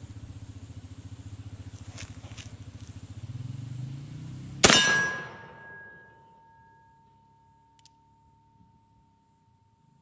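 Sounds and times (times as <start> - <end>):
low pulsing hum: 0.0 - 10.0
revolver gunshot: 4.6 - 6.0.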